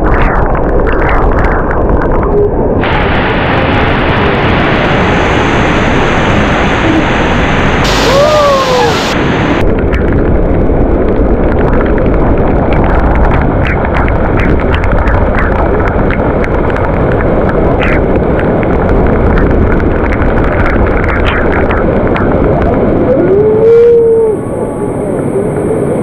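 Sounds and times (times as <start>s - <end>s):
waterfall rushing: 2.8s - 9.7s.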